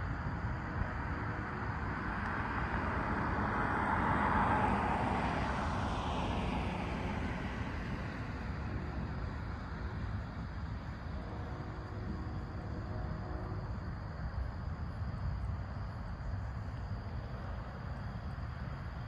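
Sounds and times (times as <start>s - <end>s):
vehicle passing by: 2.3s - 9.0s.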